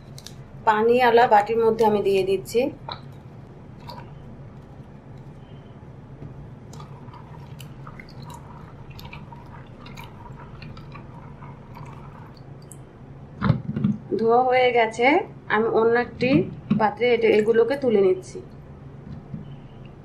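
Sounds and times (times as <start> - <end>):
wet fruits rubbing in water: 6.6 - 12.4.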